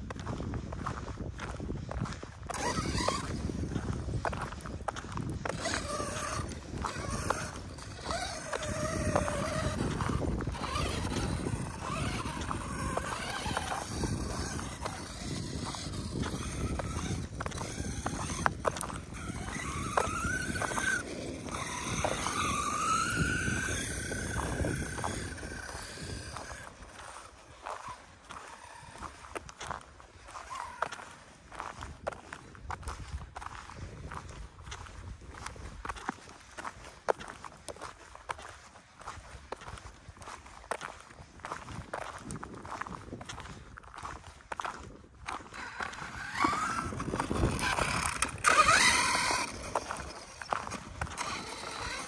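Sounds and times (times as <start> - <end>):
footsteps crunching on gravel: 0.0 - 52.0
electric motor whine: 2.0 - 29.4, 45.3 - 52.0.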